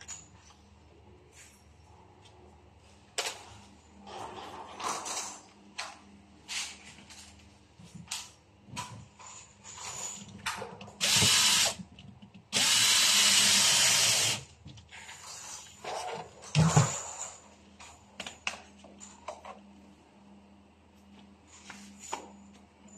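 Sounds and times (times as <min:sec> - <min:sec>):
cordless drill driving a screw: 0:11.0 - 0:11.8, 0:12.6 - 0:14.4.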